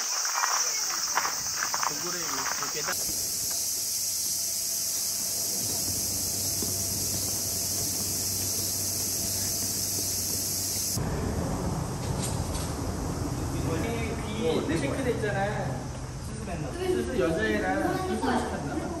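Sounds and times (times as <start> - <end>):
cicadas droning: 0.0 - 19.0
low hum: 3.0 - 14.3.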